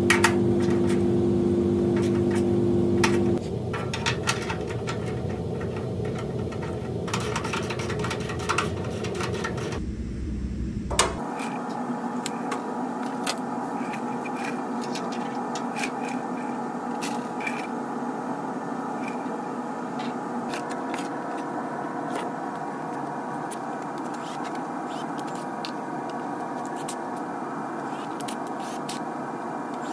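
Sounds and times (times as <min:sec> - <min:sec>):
background hum: 0:00.0 - 0:29.9
metal clicks and scrapes: 0:03.0 - 0:09.8, 0:11.2 - 0:17.7.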